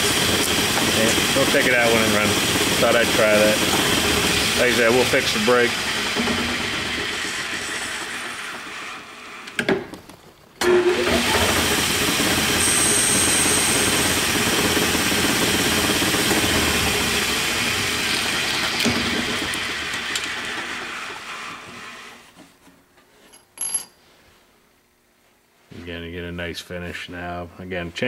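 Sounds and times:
lathe spindle running: 0:00.0 - 0:09.6, 0:10.6 - 0:22.2.

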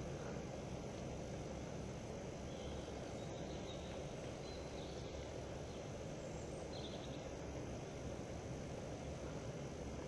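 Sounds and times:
low woodland rumble: 0:00.0 - 0:10.0
faint high bird chirps: 0:02.5 - 0:07.3.

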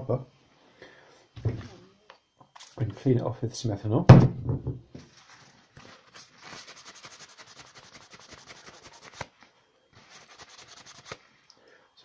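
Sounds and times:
paper towel scrubbing circuit board: 0:06.0 - 0:09.3, 0:10.0 - 0:11.3.

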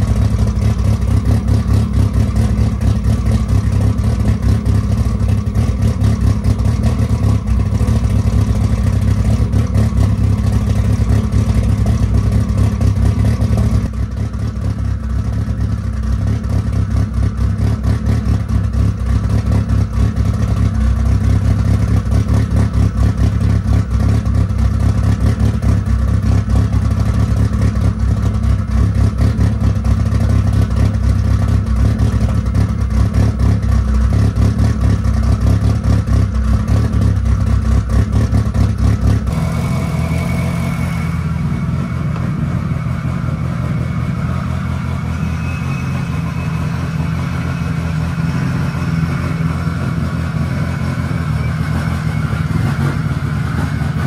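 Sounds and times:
car engine running through exhaust: 0:00.0 - 0:54.0.

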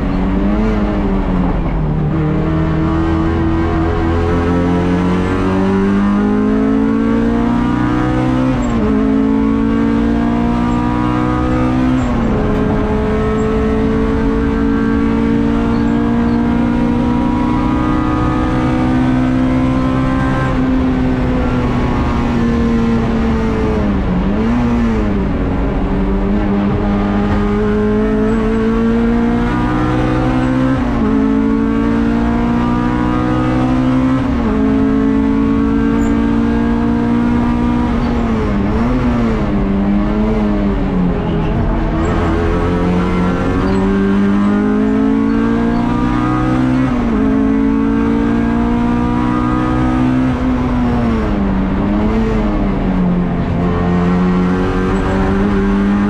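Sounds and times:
race car engine revving through gears: 0:00.0 - 0:56.0.

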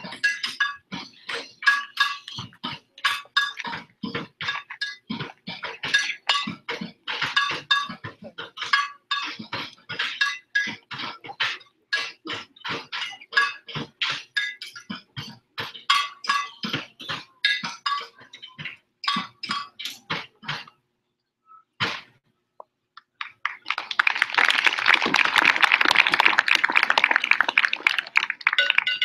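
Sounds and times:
metal wheelbarrows struck: 0:00.0 - 0:20.7, 0:21.8 - 0:22.2.

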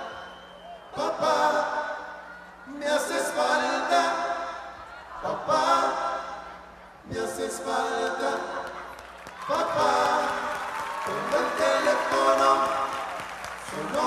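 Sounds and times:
voices singing long phrases: 0:00.9 - 0:14.0.

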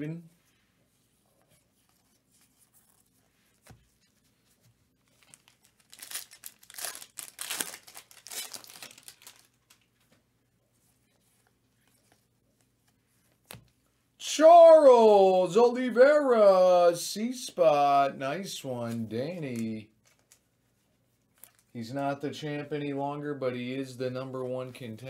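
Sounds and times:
foil wrapper tearing and crinkling: 0:05.1 - 0:09.9.

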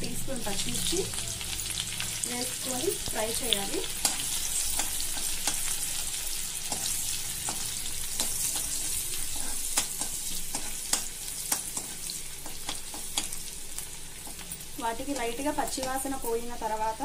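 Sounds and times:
food sizzling in hot oil: 0:00.0 - 0:17.0.

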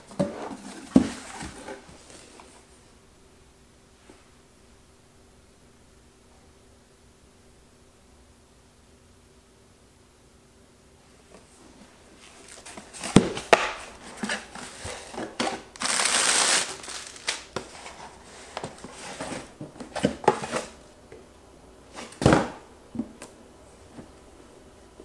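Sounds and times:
boxes knocking and thudding: 0:00.0 - 0:01.9, 0:12.6 - 0:20.8, 0:22.0 - 0:23.2
cardboard rustling: 0:00.1 - 0:02.7, 0:11.3 - 0:20.8
cardboard hissing rasp: 0:14.0 - 0:19.5.

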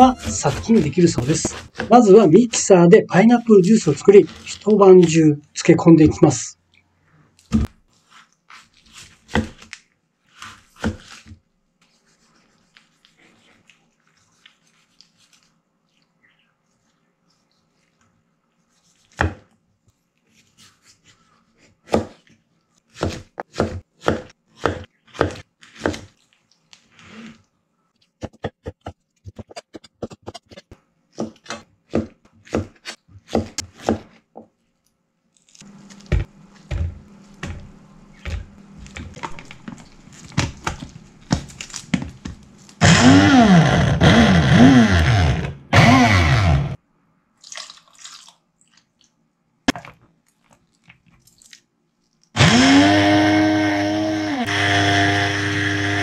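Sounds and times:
knife cutting on cutting board: 0:00.0 - 0:02.0, 0:10.3 - 0:11.4
blender motor struggling: 0:42.8 - 0:46.8, 0:52.4 - 0:56.0.

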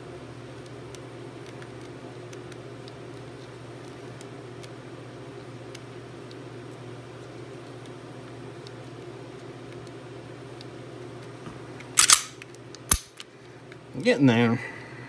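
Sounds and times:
steady low hum: 0:00.0 - 0:15.0
pistol trigger clicks: 0:12.0 - 0:13.2.

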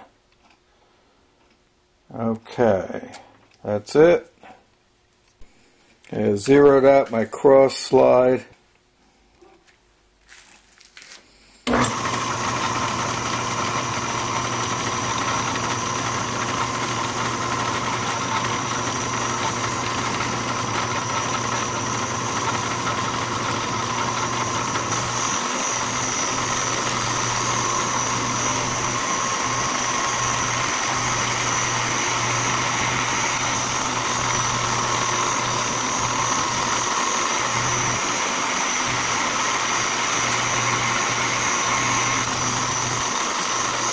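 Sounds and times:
lathe switching on: 0:11.6 - 0:43.9
lathe motor hum and whine: 0:11.7 - 0:43.9.

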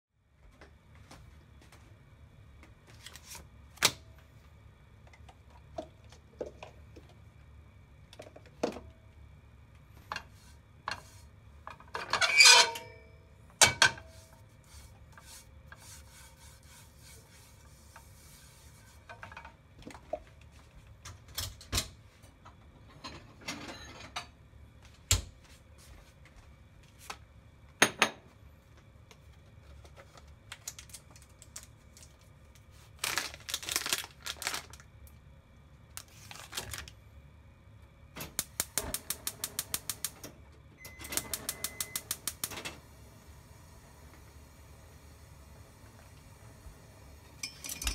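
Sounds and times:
pan and utensils clattering: 0:11.8 - 0:14.1, 0:22.9 - 0:24.3, 0:47.4 - 0:47.9
brush rubbing on pan: 0:14.0 - 0:19.1
clicks and knocks of utensils: 0:47.4 - 0:47.9.

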